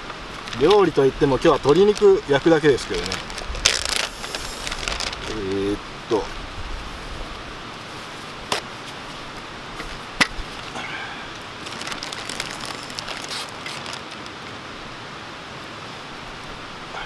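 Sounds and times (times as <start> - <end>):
paper and plastic bag rustling: 0.0 - 5.8, 11.6 - 14.4
wood fire crackling: 0.0 - 14.5.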